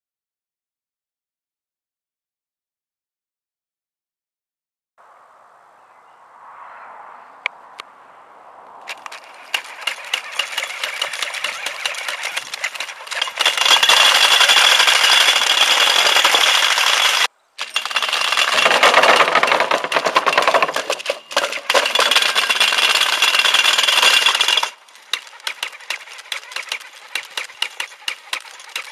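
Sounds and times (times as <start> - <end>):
chain drive rattling: 8.9 - 28.9
electric gear motors whining: 8.9 - 28.9
rapid clicking of wheel-legs: 8.9 - 28.9.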